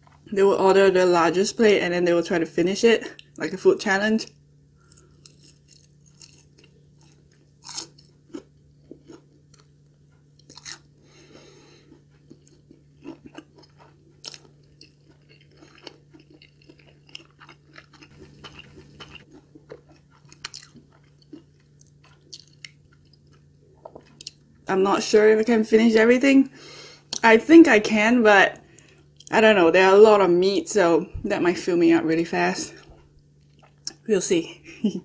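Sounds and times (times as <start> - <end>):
faint low hum: 0.0 - 35.0
crunchy chewing: 4.8 - 24.6, 32.7 - 34.0.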